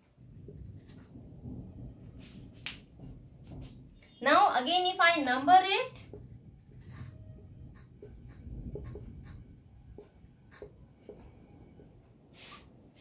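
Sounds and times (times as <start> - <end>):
marker pen writing on whiteboard: 0.4 - 1.2, 6.0 - 11.3, 12.3 - 13.0.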